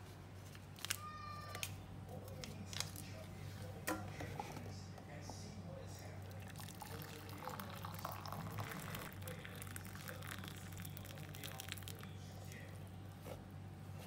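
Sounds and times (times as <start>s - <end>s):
water pouring into a mug: 6.0s - 12.4s.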